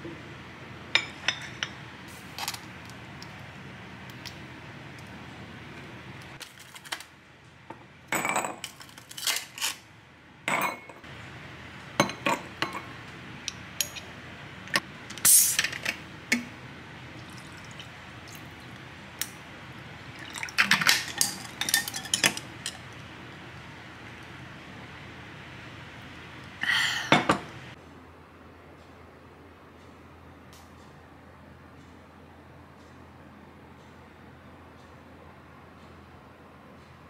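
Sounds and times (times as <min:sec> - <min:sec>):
clinks of glass and dishes: 0:01.0 - 0:01.8, 0:10.5 - 0:11.0, 0:12.0 - 0:12.9, 0:20.7 - 0:22.8.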